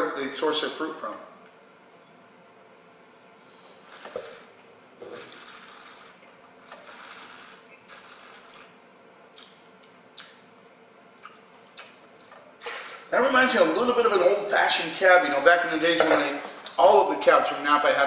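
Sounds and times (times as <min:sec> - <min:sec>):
lip smacks and mouth clicks: 0:09.3 - 0:10.4, 0:11.1 - 0:12.5.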